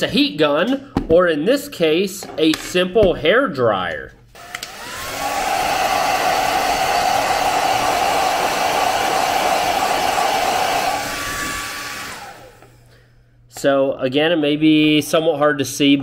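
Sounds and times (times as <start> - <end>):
hair dryer blowing: 4.4 - 12.9.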